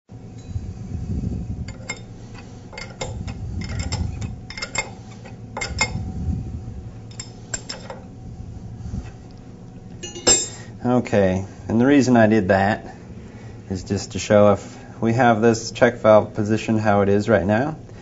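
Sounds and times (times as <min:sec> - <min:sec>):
wrench clinking on metal: 0:01.7 - 0:02.1, 0:02.7 - 0:06.0, 0:07.1 - 0:08.0, 0:10.0 - 0:10.6.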